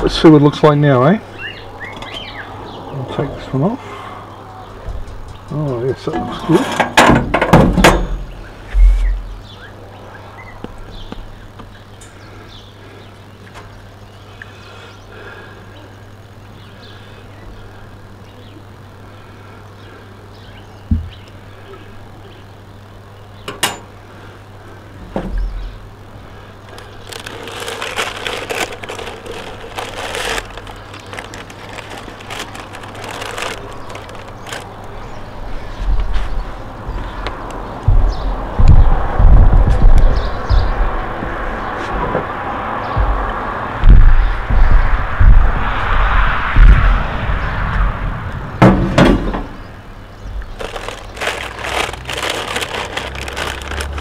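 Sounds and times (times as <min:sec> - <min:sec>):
steady low hum: 0:00.0 - 0:54.0
baking paper crinkling: 0:26.6 - 0:35.1, 0:50.5 - 0:54.0
knocks: 0:42.9 - 0:45.5.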